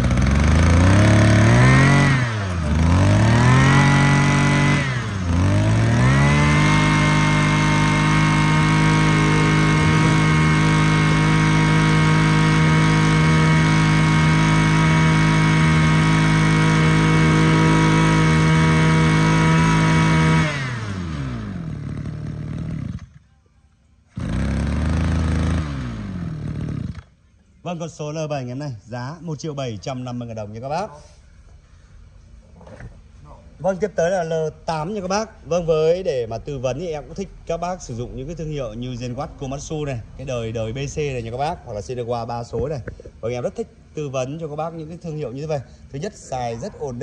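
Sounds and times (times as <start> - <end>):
two-stroke brush cutter engine: 0.0 - 23.2, 24.1 - 27.2.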